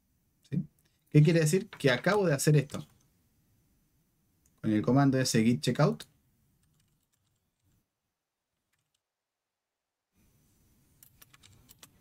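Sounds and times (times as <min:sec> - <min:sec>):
computer keyboard typing: 0:06.6 - 0:07.6, 0:08.7 - 0:09.0, 0:11.0 - 0:12.0.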